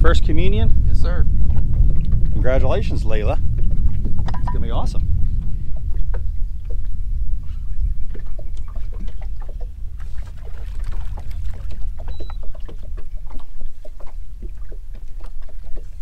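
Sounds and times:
wind rumble on microphone: 0:00.0 - 0:16.0
water slapping hull: 0:00.3 - 0:16.0.

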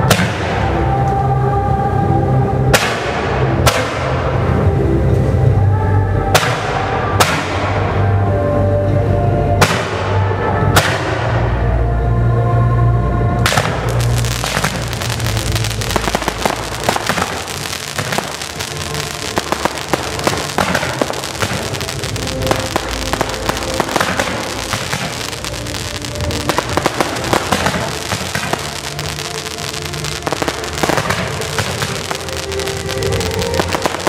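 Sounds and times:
music playing: 0:00.0 - 0:34.0
fireworks cracking and popping: 0:13.4 - 0:34.0.

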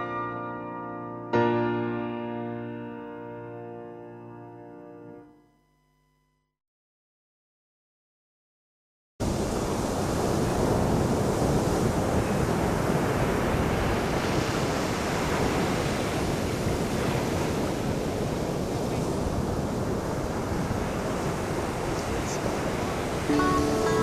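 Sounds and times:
waves breaking on sand beach: 0:09.2 - 0:24.0.

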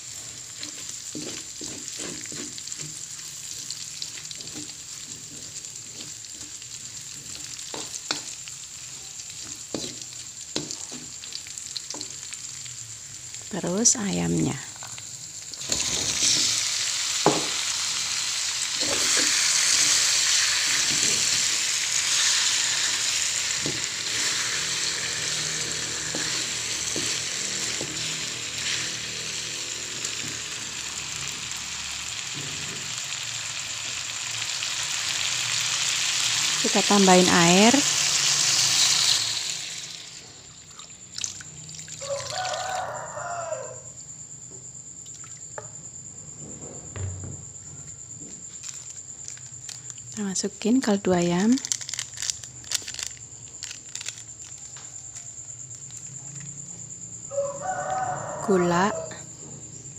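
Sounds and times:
spatula stirring: 0:00.0 - 0:12.6, 0:18.7 - 0:29.9
chicken sizzling in oil: 0:00.0 - 0:43.9, 0:57.3 - 0:59.1
plastic sachet crinkling: 0:51.4 - 0:54.8.

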